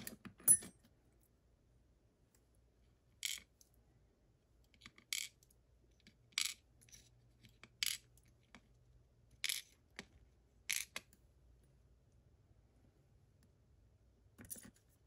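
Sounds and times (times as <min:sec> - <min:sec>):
metal parts clinking on a tray: 0:00.0 - 0:00.7.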